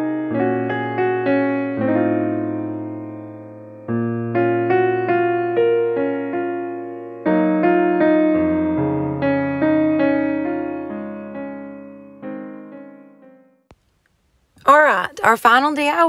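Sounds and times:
slow piano music: 0.0 - 13.7.

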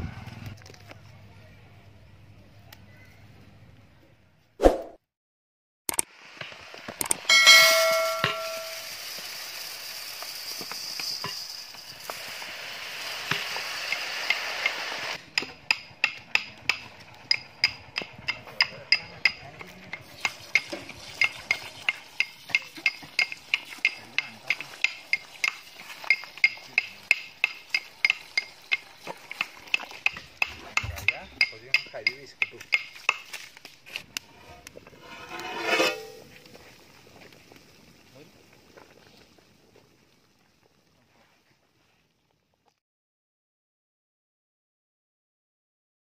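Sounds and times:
wood fire crackling: 6.1 - 42.8.

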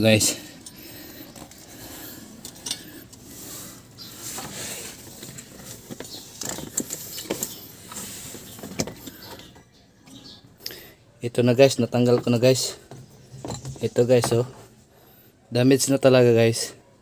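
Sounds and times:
clicks and scraping of metal parts: 0.3 - 10.3, 12.0 - 14.7.

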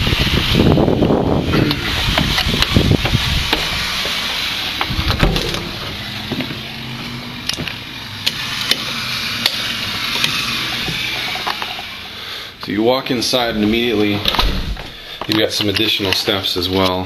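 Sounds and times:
heavy thump: 1.5 - 7.9, 14.1 - 15.0
footsteps on concrete steps: 1.6 - 12.1, 14.7 - 17.0
door knocks and clicks: 4.8 - 6.6.

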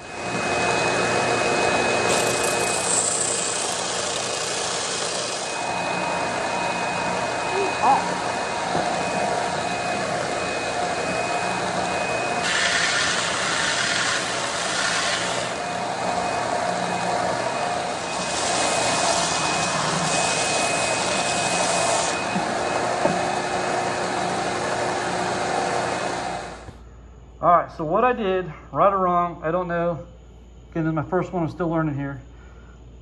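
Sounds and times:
belt sander motor running: 0.0 - 26.6
dust collection vacuum: 0.0 - 26.8
wood sanding hiss: 12.4 - 15.6.

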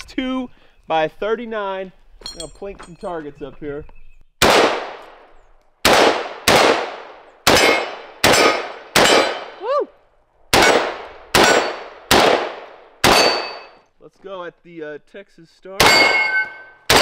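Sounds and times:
rifle shots: 4.4 - 9.6, 10.5 - 13.8, 15.8 - 17.0
steel targets ringing: 13.0 - 13.8, 15.8 - 17.0.

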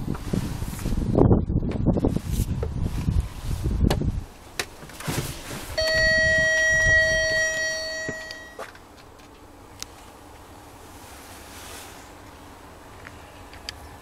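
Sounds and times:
steady single-pitched tone: 5.8 - 8.6.

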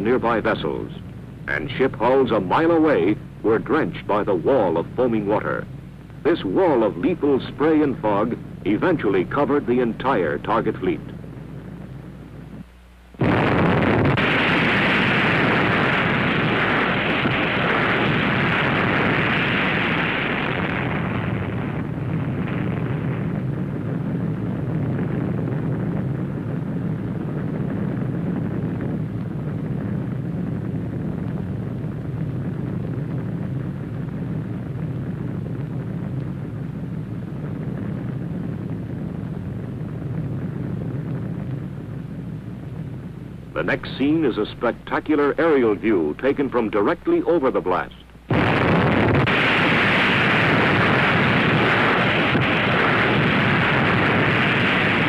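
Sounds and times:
steady low rumble: 0.0 - 55.0
explosion blast: 13.2 - 55.0
hissing rush: 13.2 - 55.0.

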